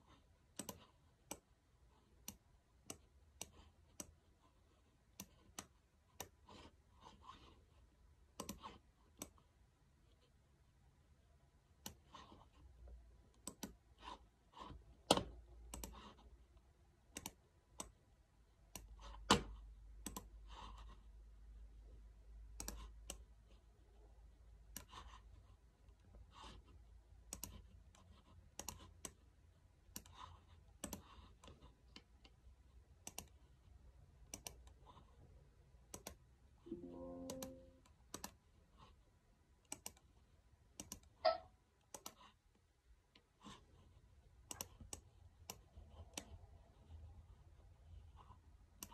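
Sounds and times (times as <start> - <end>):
computer mouse and keys clicking: 0.0 - 10.4, 11.7 - 18.0, 18.7 - 21.3, 22.4 - 23.7, 24.7 - 29.3, 29.9 - 35.2, 35.8 - 39.0, 39.6 - 42.5, 43.1 - 47.0, 48.1 - 48.9
brief low tone: 36.7 - 37.9.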